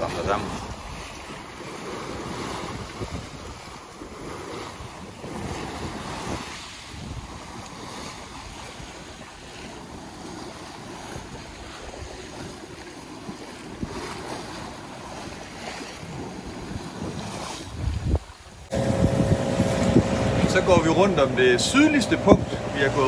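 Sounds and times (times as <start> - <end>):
waves rushing against boat hull: 0.0 - 23.0
wind buffeting microphone: 0.0 - 23.0
steady hum: 18.7 - 23.0.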